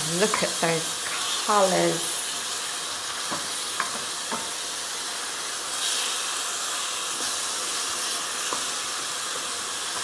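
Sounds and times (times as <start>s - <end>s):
food sizzling in a pan: 0.0s - 10.0s
wooden spoon knocking on pan: 3.3s - 4.5s.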